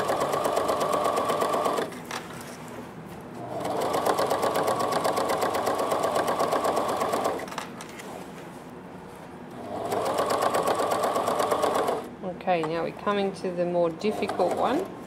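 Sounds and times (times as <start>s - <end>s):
sewing machine stitching: 0.0s - 2.0s, 3.5s - 7.5s, 9.6s - 12.1s, 14.0s - 14.9s.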